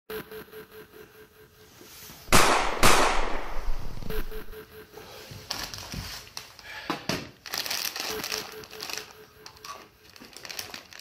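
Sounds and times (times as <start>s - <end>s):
plastic snack bag crinkling: 7.4s - 11.0s.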